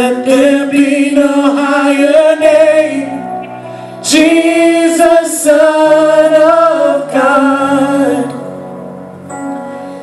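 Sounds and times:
people singing: 0:00.0 - 0:03.4, 0:04.0 - 0:08.5
worship band music: 0:00.0 - 0:10.0.

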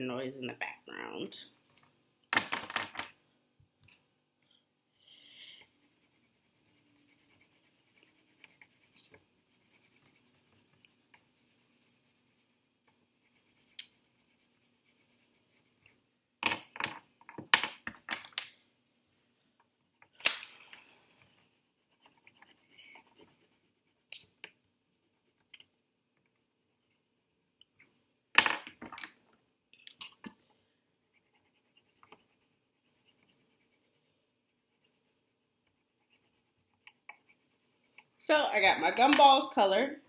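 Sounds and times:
colouring tool scratching paper: 0:05.6 - 0:16.0, 0:21.1 - 0:24.3, 0:31.1 - 0:38.2.

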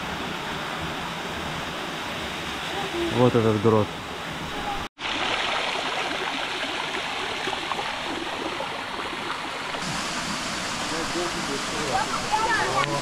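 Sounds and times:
waterfall rushing water: 0:00.0 - 0:13.0.

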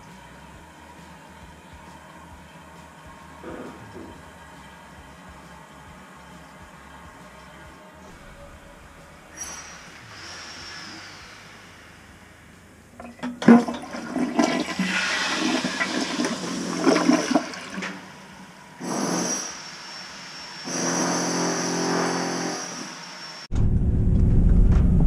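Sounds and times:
low rumble: 0:03.4 - 0:13.0, 0:23.5 - 0:25.0
water refilling hiss: 0:09.3 - 0:12.7, 0:13.9 - 0:23.5
water rushing down toilet bowl: 0:13.0 - 0:18.3.

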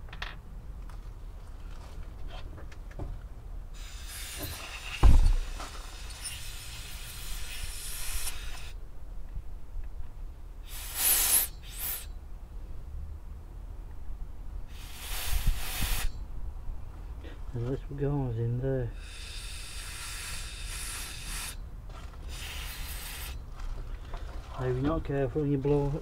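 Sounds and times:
compressed air hissing: 0:03.7 - 0:08.8, 0:10.6 - 0:12.2, 0:14.7 - 0:16.2, 0:18.9 - 0:21.6, 0:22.2 - 0:23.4
sharp thump: 0:04.4 - 0:05.5.

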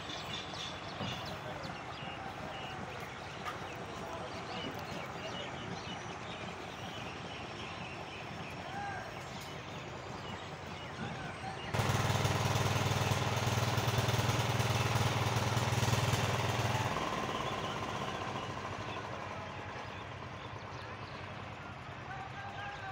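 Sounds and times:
engine running loudly: 0:09.8 - 0:22.9.

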